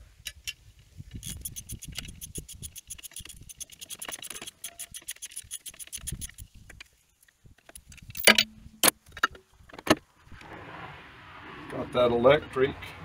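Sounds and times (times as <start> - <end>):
ratchet wrench clicking: 1.2 - 6.4.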